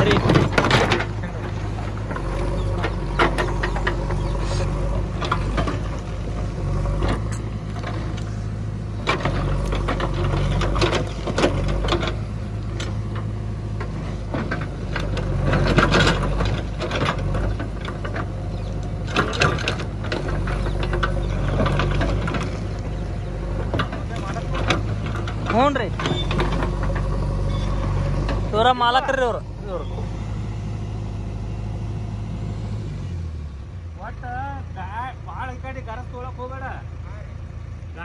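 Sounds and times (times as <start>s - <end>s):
diesel engine running: 0.0s - 38.0s.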